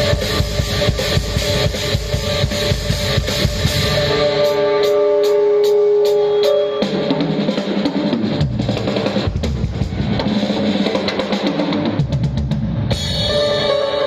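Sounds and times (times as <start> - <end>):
rapid drumming: 0.0 - 13.8.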